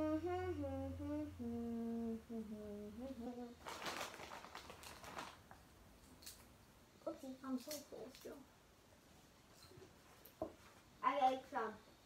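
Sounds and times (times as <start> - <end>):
person humming: 0.0 - 3.7
rustling: 3.6 - 6.5.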